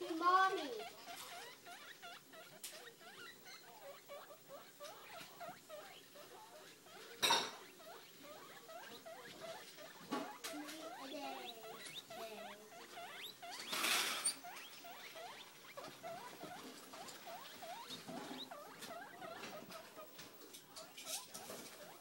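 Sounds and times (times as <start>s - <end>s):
guinea pig squeaking: 0.0s - 22.0s
rustling: 0.0s - 22.0s.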